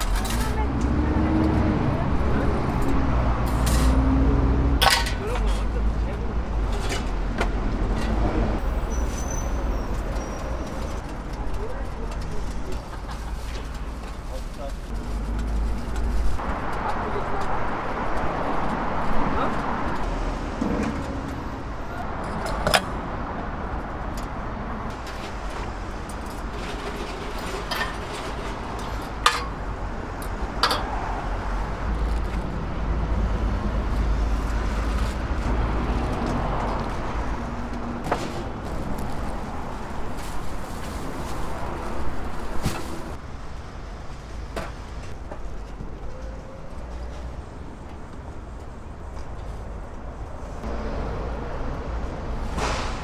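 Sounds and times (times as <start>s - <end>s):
market crowd hubbub: 0.0s - 19.9s.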